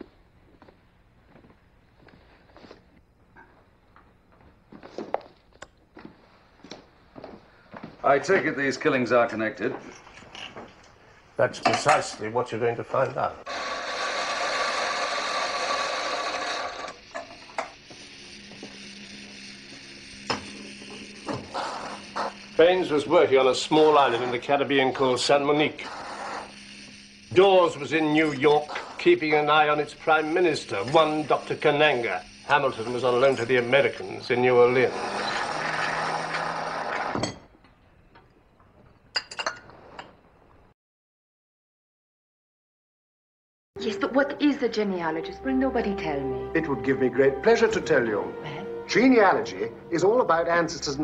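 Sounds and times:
espresso machine hiss: 13.5 - 37.1
cups and metal clinking: 39.2 - 40.2.

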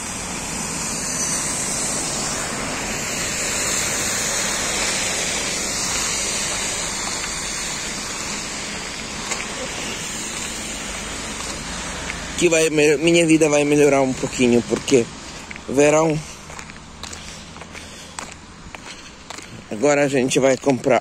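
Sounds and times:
lorry passing: 0.0 - 21.0
road traffic rushing: 0.0 - 21.0.

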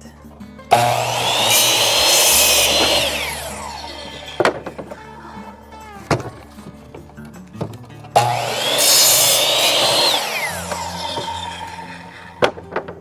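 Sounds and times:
miter saw motor whine: 0.7 - 5.0, 8.2 - 12.6
saw blade cutting board: 0.7 - 5.0, 8.2 - 12.9.

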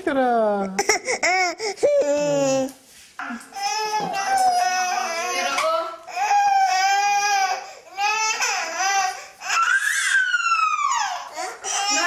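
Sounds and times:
child's high-pitched squealing: 9.5 - 12.0.

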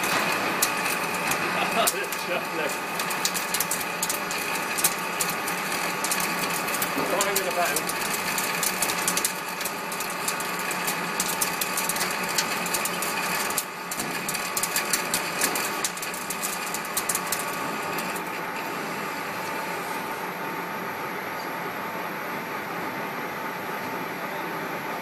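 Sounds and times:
crackle of cutting ticks: 0.0 - 18.4
metal lathe humming: 0.0 - 20.4.

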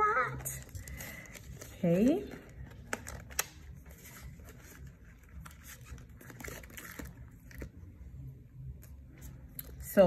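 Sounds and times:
paper envelopes rustling: 0.3 - 7.9.

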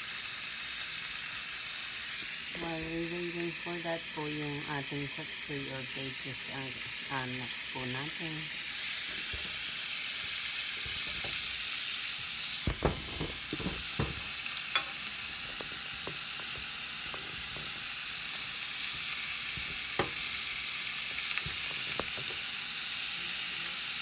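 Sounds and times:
beef sizzling in oil: 0.0 - 24.0.

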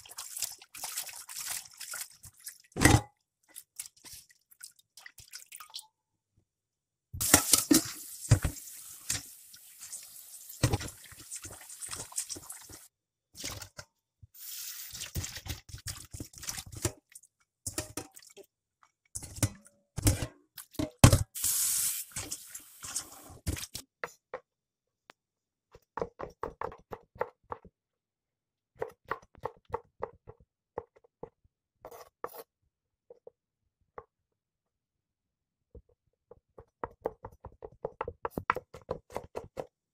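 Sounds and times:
water splashing in a metal bowl: 0.0 - 6.0, 7.2 - 13.8, 14.4 - 18.6.

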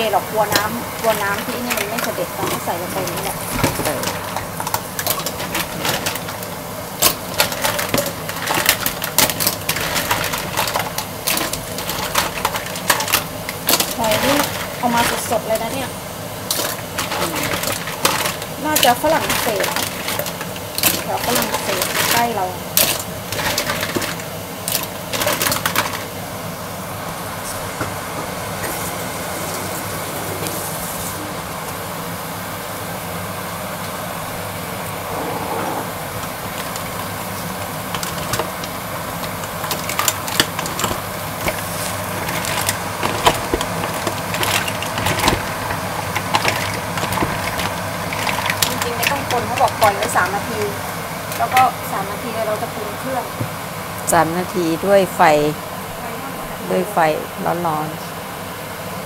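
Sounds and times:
mussel shells clacking in a pot: 0.0 - 26.2, 36.1 - 53.0.

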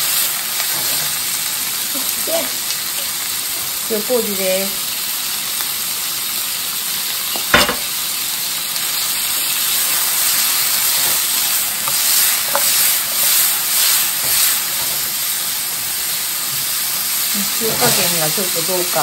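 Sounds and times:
food sizzling in a frying pan: 0.0 - 19.0.

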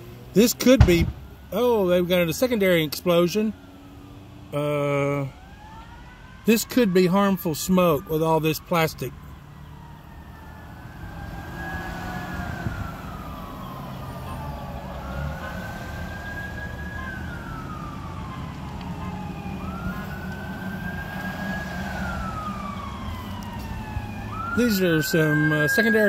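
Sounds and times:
road traffic passing: 0.0 - 26.0
fire engine siren wailing: 0.3 - 26.0.

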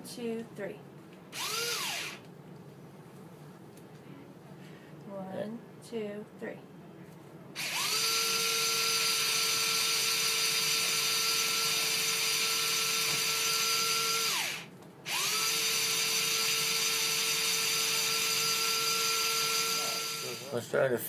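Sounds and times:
drill whining: 1.3 - 2.3, 7.6 - 20.5.

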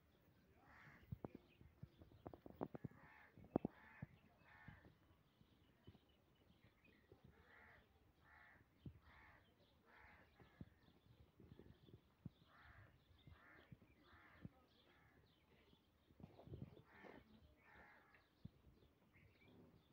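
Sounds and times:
crows cawing: 7.5 - 10.6, 16.8 - 18.3.

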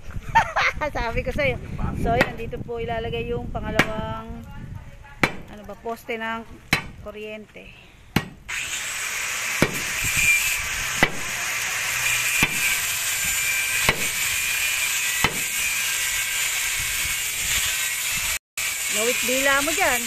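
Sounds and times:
hand tool striking: 12.1 - 12.8, 13.4 - 16.0.

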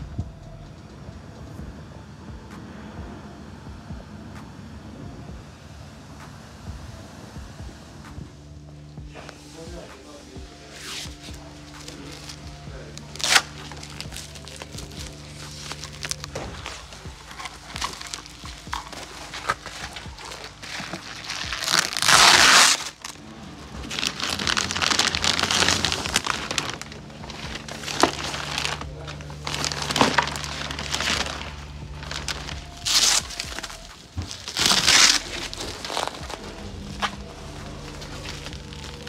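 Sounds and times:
bubble wrap crinkling: 9.1 - 39.0.

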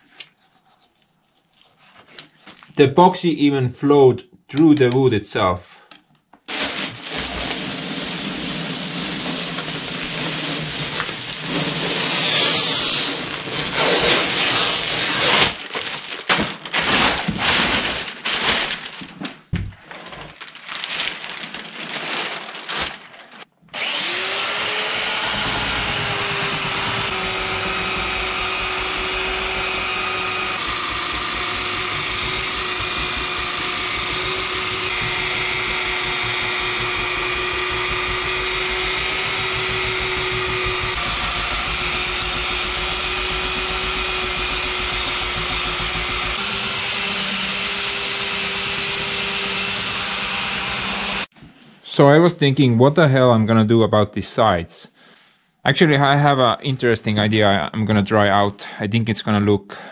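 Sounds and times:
electric belt sander whining: 6.5 - 14.8, 23.8 - 51.3
rustling and scraping on plastic: 13.1 - 23.5.

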